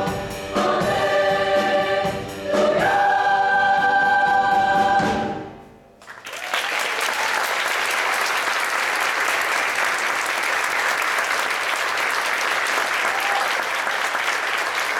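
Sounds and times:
audience applauding: 6.0 - 14.9.

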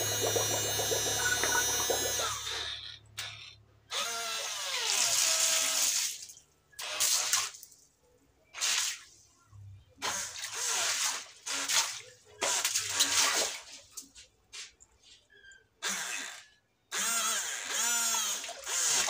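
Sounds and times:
water spraying and splashing: 0.0 - 2.3
electric motor whine: 0.0 - 2.6.

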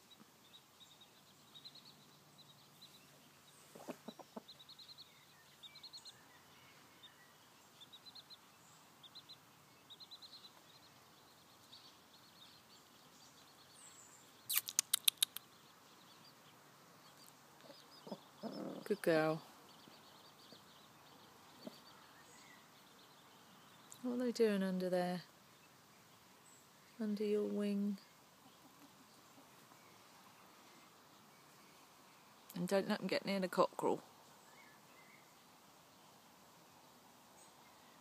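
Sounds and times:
chicks peeping: 0.0 - 24.0, 25.5 - 31.8
sharp clicks: 14.5 - 15.5.

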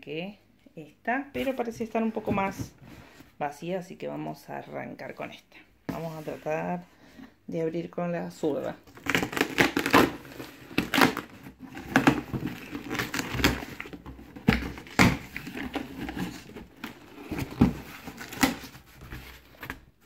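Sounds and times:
cardboard box tearing open: 8.9 - 19.6.

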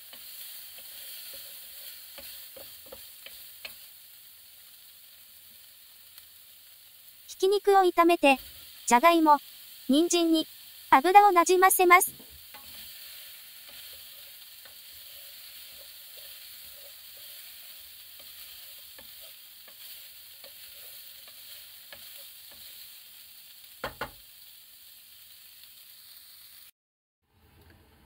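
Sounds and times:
food sizzling in a frying pan: 0.0 - 26.7.

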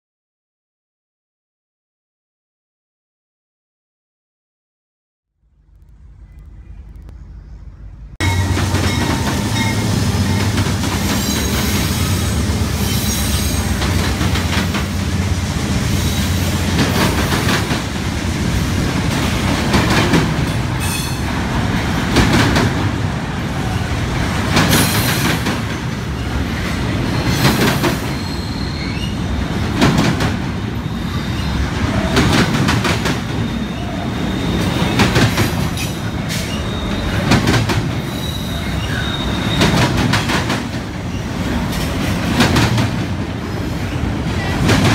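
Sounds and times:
train wheels rumbling: 5.4 - 44.9
wheels clacking over rail joints: 8.2 - 15.2, 16.1 - 44.9
faint wheel squeal: 28.0 - 29.3, 33.4 - 35.2, 35.8 - 37.4, 38.0 - 39.8.

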